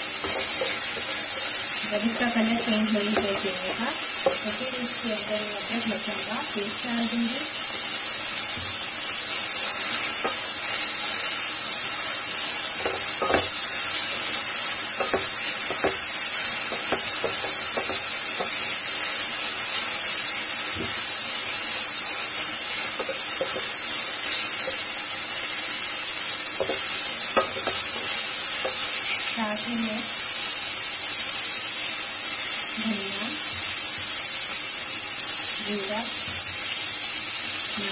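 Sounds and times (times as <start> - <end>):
spatula scraping a pan: 0.0 - 6.2, 9.2 - 29.7
minced meat sizzling in oil: 0.0 - 37.9.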